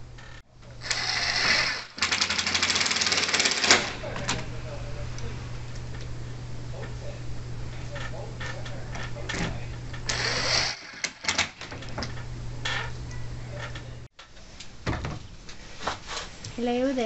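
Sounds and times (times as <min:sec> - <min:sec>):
steady low hum: 0:00.0 - 0:17.0
cordless drill whirring: 0:00.8 - 0:04.0, 0:10.1 - 0:11.6.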